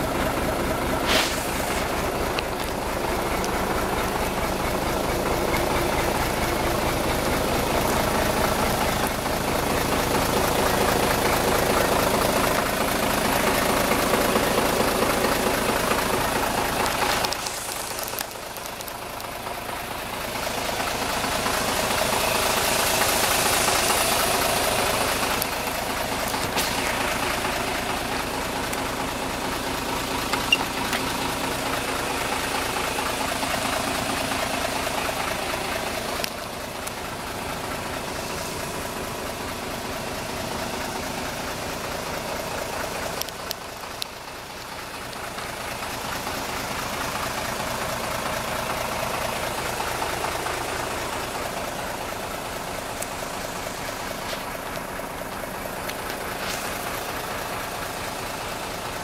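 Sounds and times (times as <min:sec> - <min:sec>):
diesel engine idling: 0:00.0 - 0:59.0.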